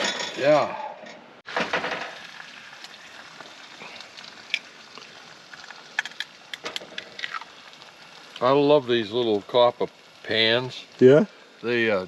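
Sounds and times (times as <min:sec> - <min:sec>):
eggs sizzling in a pan: 0:01.4 - 0:12.0
eggshells cracking: 0:03.9 - 0:08.4.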